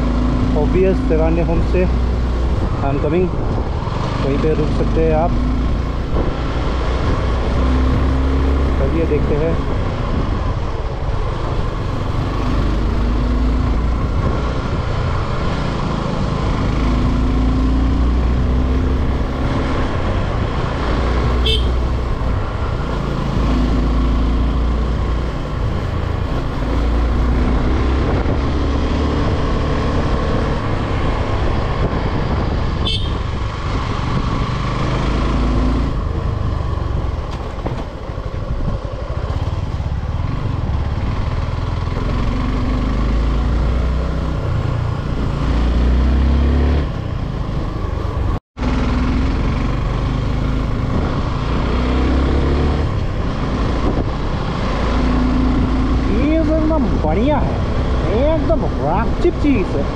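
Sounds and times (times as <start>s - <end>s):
wind on microphone: 1.4s - 4.2s, 24.6s - 46.2s, 49.3s - 59.9s
motorcycle engine running: 19.8s - 29.4s, 32.4s - 45.4s.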